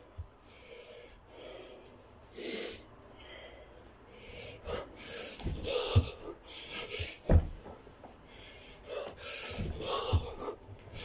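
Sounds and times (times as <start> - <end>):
man breathing heavily: 0.2 - 7.6, 8.2 - 11.0
dull thuds on carpeted floor: 5.4 - 6.3, 7.0 - 7.8, 9.5 - 11.0.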